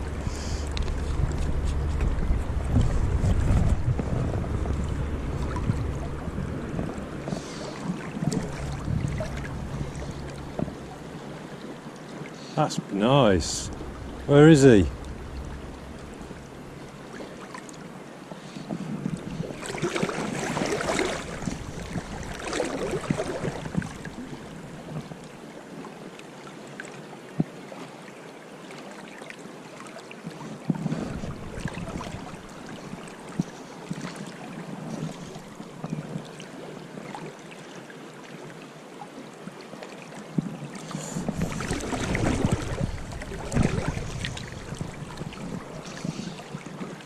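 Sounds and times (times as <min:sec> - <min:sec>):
wind buffeting microphone: 0:00.0 - 0:11.9, 0:12.9 - 0:17.4, 0:18.7 - 0:25.0, 0:30.8 - 0:34.0, 0:40.9 - 0:47.0
river water flowing: 0:00.0 - 0:47.0.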